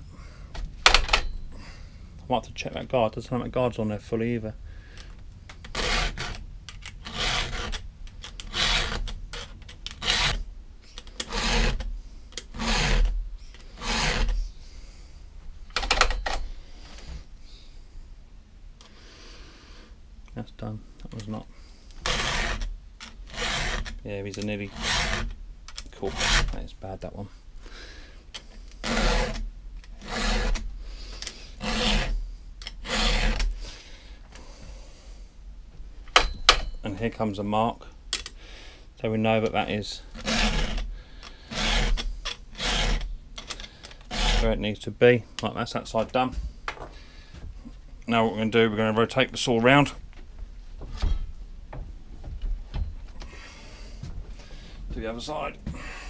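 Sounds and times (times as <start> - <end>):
file rasping on chainsaw chain: 5.7 - 6.4, 7.0 - 10.5, 11.1 - 14.5, 22.0 - 25.3, 26.0 - 26.6, 28.7 - 30.7, 31.4 - 33.6, 39.8 - 43.1, 44.0 - 44.7.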